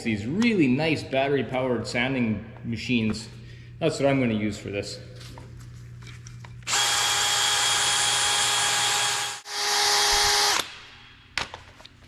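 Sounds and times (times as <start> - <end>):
drill spinning sanding attachment: 6.7 - 10.6.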